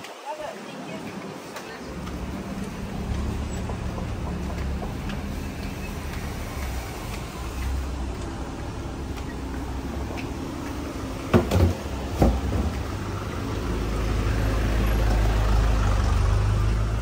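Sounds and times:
low vehicle rumble: 1.8 - 17.0
sharp knocks: 11.3 - 12.7.

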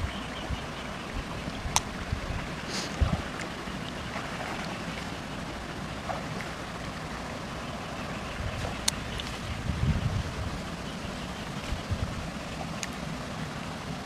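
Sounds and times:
wind rumbling on microphone: 0.0 - 7.0, 8.0 - 14.0
water sloshing and splashing: 0.0 - 14.0
outdoor hiss: 2.5 - 3.8.

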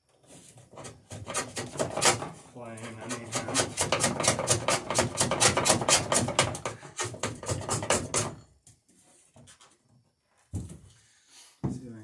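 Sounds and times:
hand plane shaving wood: 0.3 - 8.4.

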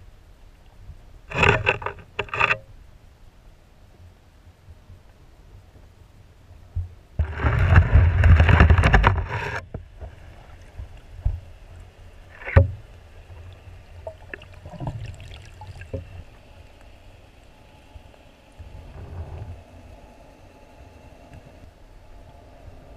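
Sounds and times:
underwater rushing water: 7.2 - 19.0.

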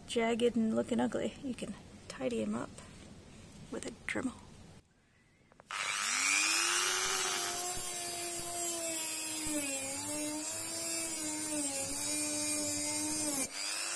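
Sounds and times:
rotary tool grinding metal: 5.7 - 13.9.

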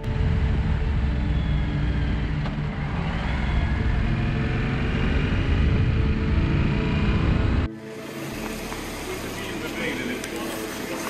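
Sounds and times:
wind and road noise rumble: 0.0 - 7.7
motorcycle engine: 0.0 - 11.0.

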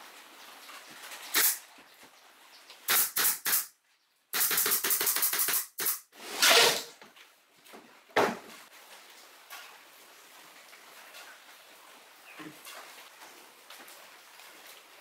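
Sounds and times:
nail gun firing into plywood: 2.9 - 3.7, 4.4 - 6.9.

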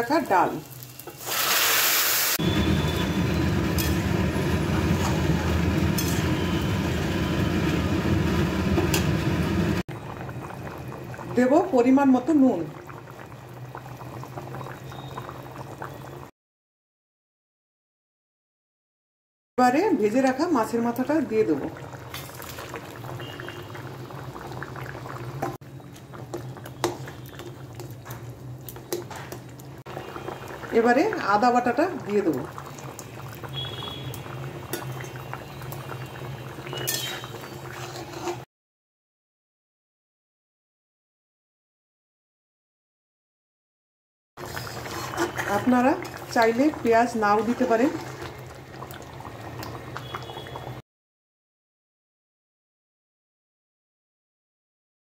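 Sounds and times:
lentils bubbling in a pan: 0.0 - 16.3, 19.6 - 38.5, 44.4 - 50.8
spatula stirring: 26.0 - 29.6, 36.8 - 38.5, 44.4 - 48.3.

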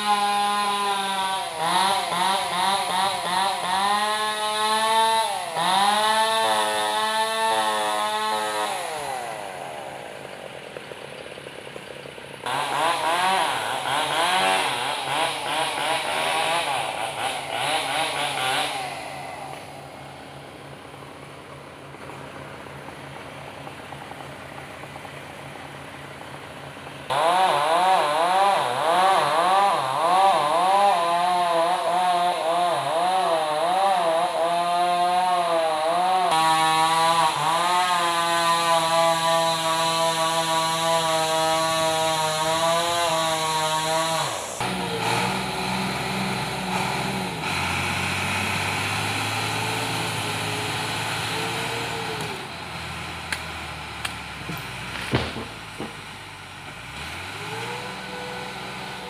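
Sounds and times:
chainsaw cutting a log: 0.0 - 59.0
bulldozer diesel engine running: 5.6 - 31.3, 41.6 - 59.0.

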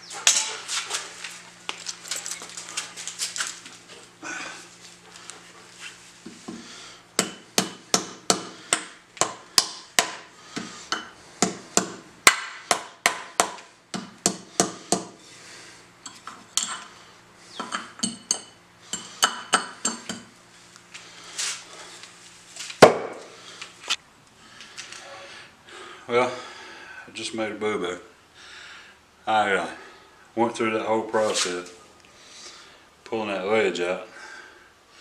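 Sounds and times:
hammer striking steel: 7.2 - 10.3.

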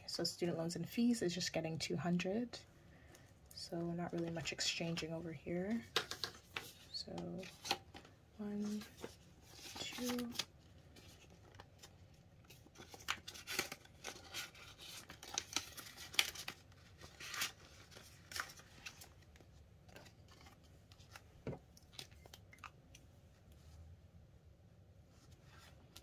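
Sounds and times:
polymer banknotes crinkling: 5.7 - 21.2.

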